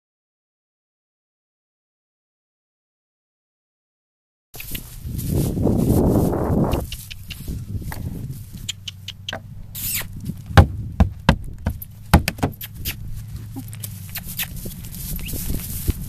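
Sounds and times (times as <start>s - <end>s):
low steady rumble: 4.8s - 16.0s
hooves on wooden bridge: 10.2s - 16.0s.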